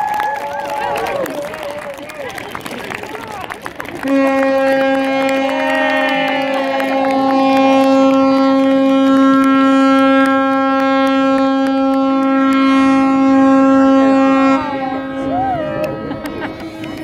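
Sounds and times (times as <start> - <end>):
ship's horn blast: 4.0 - 16.6.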